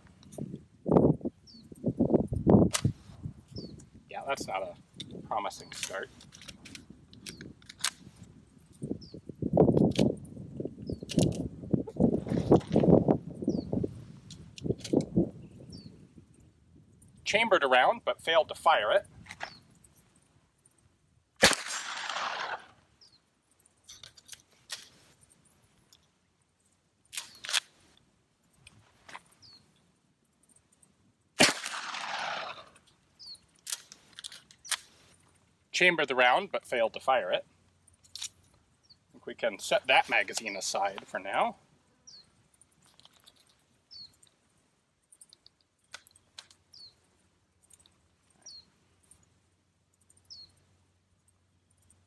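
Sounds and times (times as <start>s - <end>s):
small bird chirping: 1.3s - 1.9s, 3.4s - 3.9s, 8.8s - 9.3s, 10.7s - 11.1s, 13.3s - 13.9s, 15.4s - 17.2s, 19.4s - 20.9s, 22.9s - 24.3s, 29.2s - 31.0s, 32.6s - 33.6s, 37.8s - 39.2s, 42.0s - 52.0s
gun handling clicks: 5.0s - 8.2s, 9.7s - 10.2s, 11.0s - 11.5s, 14.2s - 15.1s, 23.7s - 26.2s, 27.0s - 27.8s, 30.5s - 35.4s, 37.9s - 38.6s, 42.6s - 44.4s, 45.1s - 46.7s
sharp clicks: 11.0s - 11.5s, 45.0s - 46.6s
gunshot with echo: 21.4s - 22.7s, 31.4s - 32.7s.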